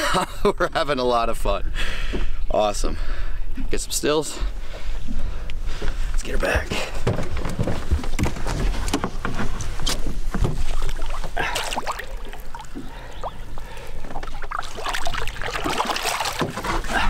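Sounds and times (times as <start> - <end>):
water splashing against boat: 8.0 - 17.0
fish splashing in water: 10.7 - 17.0.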